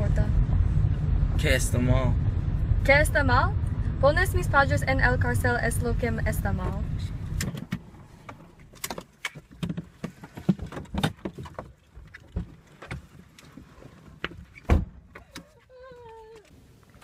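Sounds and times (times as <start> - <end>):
seats shifting: 6.4 - 17.0.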